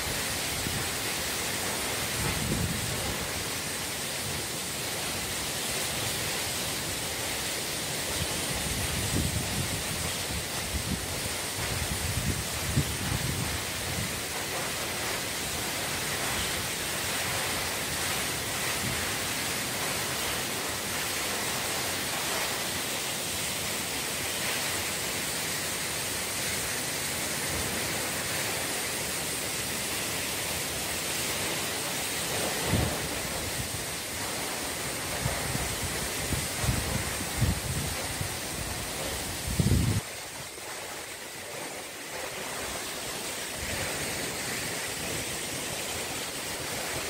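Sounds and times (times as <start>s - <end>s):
waterfall rushing: 0.0s - 47.0s.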